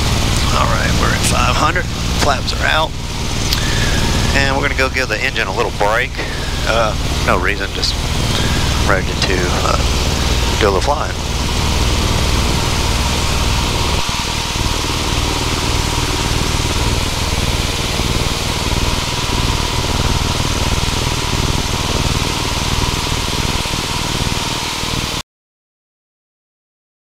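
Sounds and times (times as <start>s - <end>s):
aircraft engine and propeller drone: 0.0s - 25.2s
airflow hiss: 0.5s - 15.1s.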